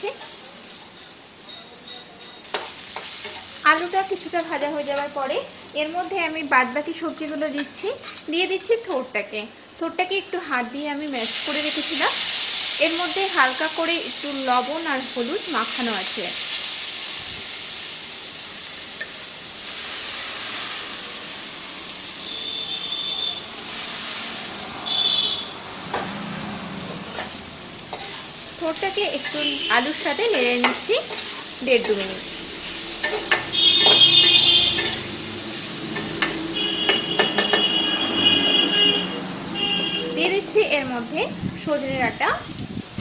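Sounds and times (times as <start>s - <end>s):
food sizzling in hot oil: 0.0s - 43.0s
spatula scraping and tapping pan: 1.4s - 3.5s, 27.1s - 28.3s, 29.2s - 32.0s, 33.0s - 35.1s, 35.9s - 37.8s.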